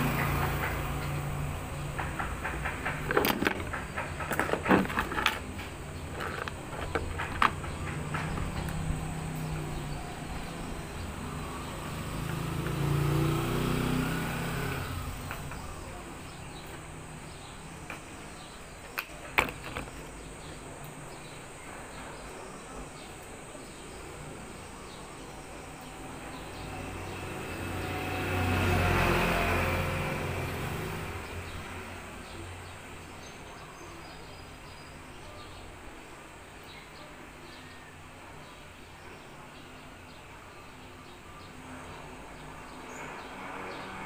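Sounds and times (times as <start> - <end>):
sharp clicks and knocks: 0.0 - 9.1, 18.8 - 20.3
vehicle passing: 0.0 - 18.8, 25.6 - 32.4
street traffic: 0.0 - 44.0.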